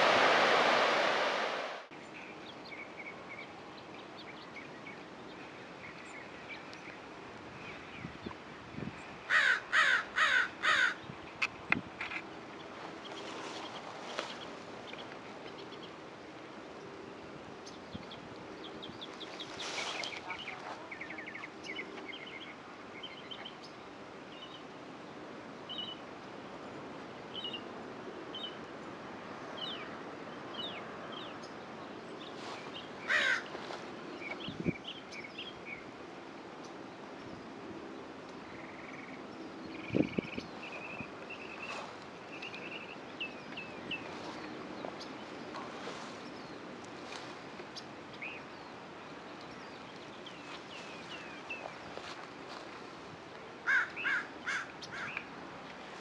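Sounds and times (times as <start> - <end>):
steady outdoor rush: 0.0 - 2.6
birds chirping: 17.6 - 24.7, 29.6 - 35.9, 38.4 - 52.8, 53.6 - 56.0.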